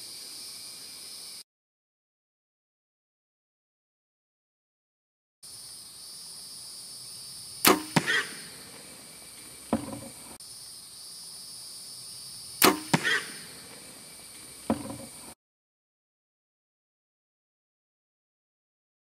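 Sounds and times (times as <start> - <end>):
high insect drone: 0.0 - 1.4, 5.4 - 15.4
arrow striking: 7.6 - 10.4, 12.6 - 15.4
bowstring crack: 7.6 - 10.4, 12.6 - 15.4.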